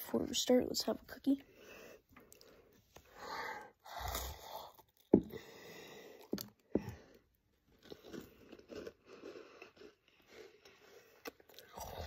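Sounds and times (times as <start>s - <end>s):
cookie crunching and chewing: 3.8s - 12.0s.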